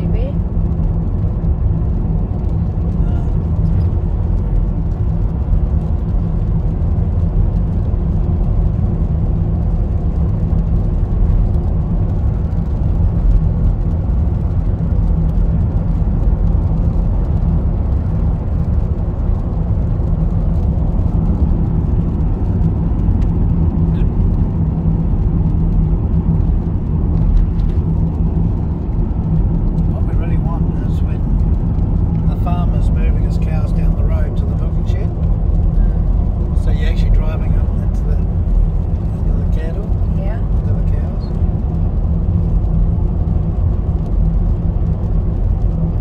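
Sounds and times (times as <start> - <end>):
car cabin road and engine drone: 0.0 - 46.0.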